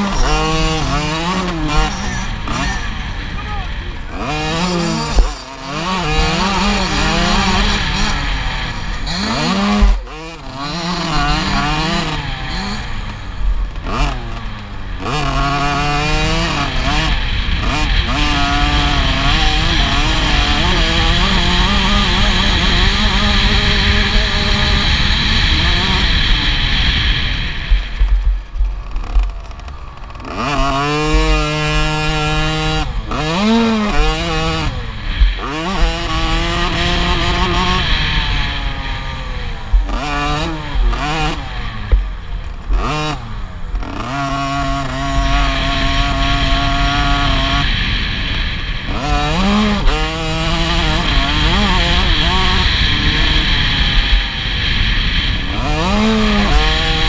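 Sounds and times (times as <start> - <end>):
motocross bike engine revving: 0.0 - 57.0
wind rumble on microphone: 15.6 - 43.8, 44.5 - 57.0.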